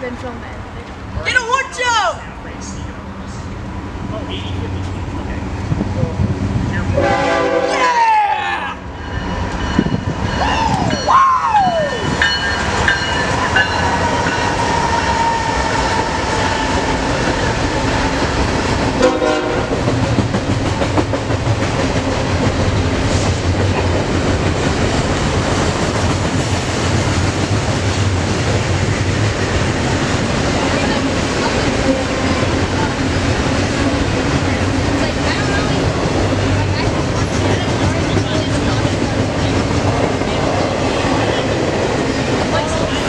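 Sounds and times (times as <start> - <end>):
freight cars rumbling and clattering: 2.2 - 7.0, 8.8 - 43.0
train horn: 6.9 - 8.3, 13.8 - 17.6, 19.0 - 19.8.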